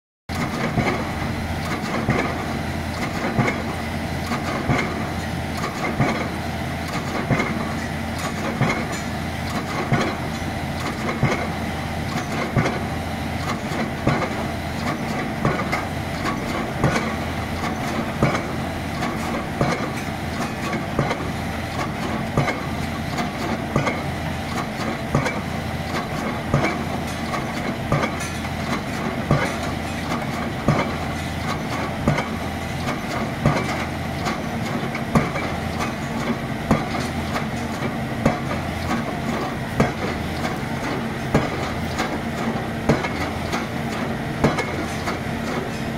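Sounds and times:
rig engine running: 0.3s - 45.9s
pile hammer striking concrete: 44.4s - 45.1s.

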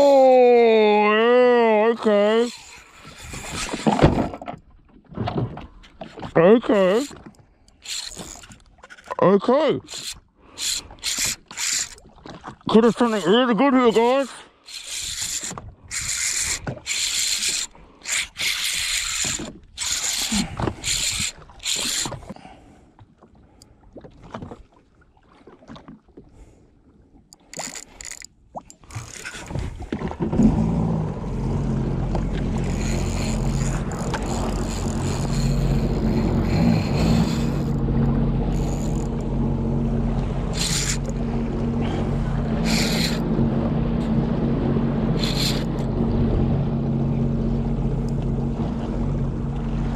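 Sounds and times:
fishing reel drag buzzing: 2.2s - 3.8s, 6.7s - 9.1s, 9.8s - 12.1s, 12.7s - 22.3s, 27.5s - 29.5s, 32.1s - 39.6s, 40.4s - 43.3s, 45.2s - 45.9s
jet ski engine running: 6.4s - 8.6s, 9.8s - 12.0s, 12.7s - 22.4s, 28.9s - 49.9s.

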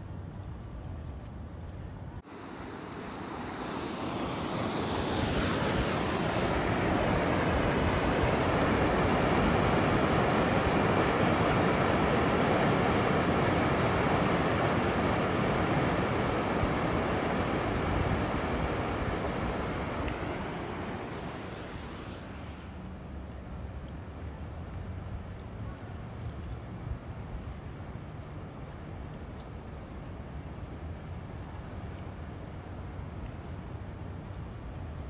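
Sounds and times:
river water rushing over weir: 2.2s - 23.9s.

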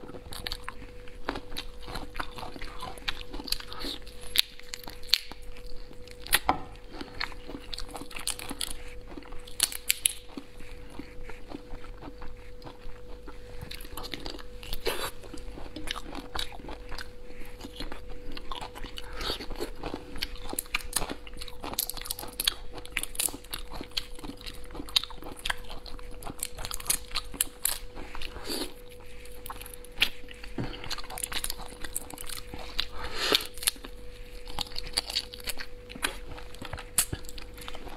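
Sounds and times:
chewing and sucking: 0.0s - 37.9s
faint steady hum: 0.0s - 37.9s.

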